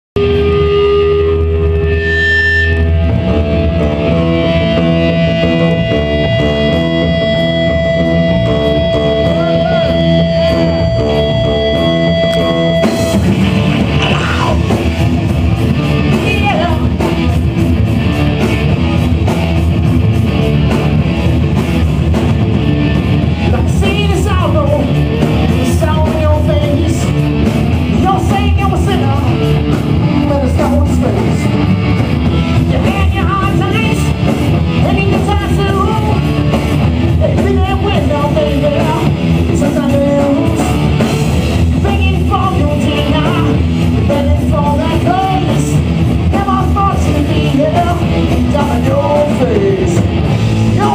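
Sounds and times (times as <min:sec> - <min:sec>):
live rock band playing: 0:00.2 - 0:50.9
person singing: 0:06.4 - 0:12.6, 0:13.8 - 0:14.9, 0:23.4 - 0:27.2, 0:32.6 - 0:34.2, 0:34.8 - 0:36.3, 0:37.1 - 0:41.1, 0:41.7 - 0:50.1, 0:50.7 - 0:50.9.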